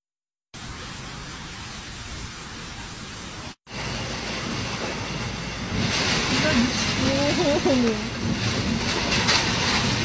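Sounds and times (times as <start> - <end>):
heavy rain and wind: 0.6 - 10.0
vehicle rumbling on flooded road: 3.7 - 10.0.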